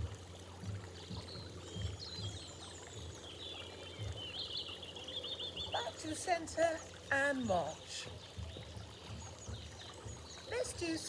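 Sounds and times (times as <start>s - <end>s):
soft low thumps: 0.0s - 4.6s, 7.4s - 11.0s
fountain running water: 0.0s - 11.0s
small birds chirping: 0.0s - 11.0s.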